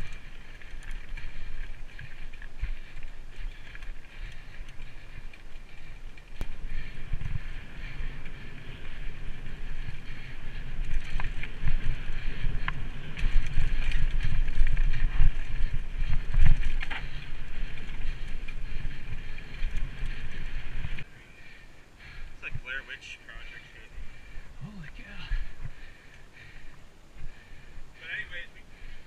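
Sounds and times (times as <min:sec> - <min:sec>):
bike rattling and knocking: 0:00.0 - 0:21.0
wind buffeting microphone: 0:00.0 - 0:22.8.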